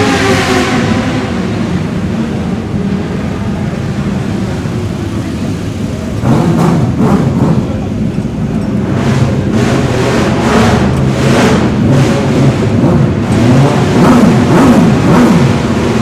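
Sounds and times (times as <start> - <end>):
small petrol engine revving: 9.0 - 16.0.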